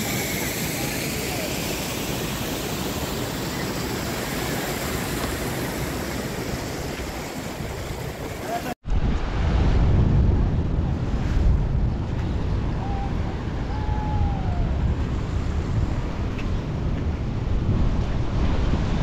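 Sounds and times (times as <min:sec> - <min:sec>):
wind buffeting microphone: 0:05.2 - 0:19.0.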